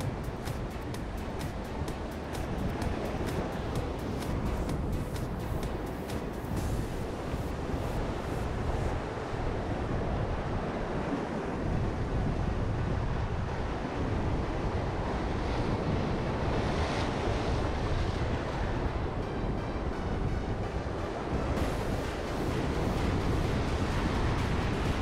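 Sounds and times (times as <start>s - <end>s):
sea surf breaking over rocks: 0.0s - 25.0s
wind buffeting the microphone: 0.0s - 25.0s.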